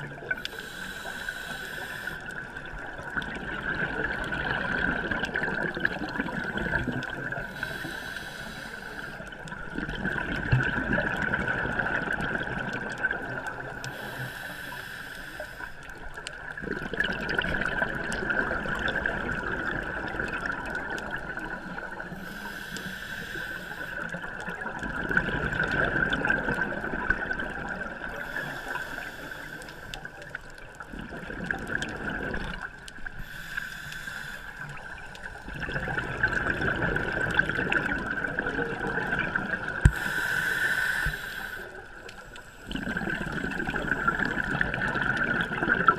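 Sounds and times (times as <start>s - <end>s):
exhaled bubbles underwater: 0.0s - 33.4s, 34.5s - 45.9s
quiet rushing of regulator: 0.1s - 10.4s, 11.7s - 16.6s, 18.9s - 24.9s, 25.6s - 45.9s.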